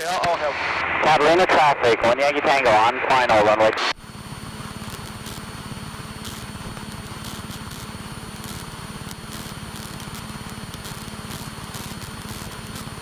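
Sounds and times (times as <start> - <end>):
light aircraft engine droning: 4.0 - 13.0.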